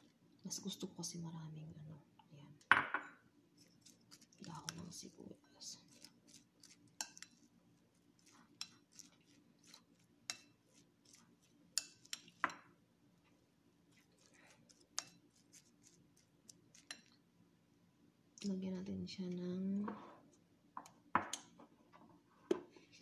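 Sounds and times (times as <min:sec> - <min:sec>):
spoon scraping glass bowl: 0:05.8 - 0:07.5, 0:08.2 - 0:12.5, 0:13.9 - 0:17.2.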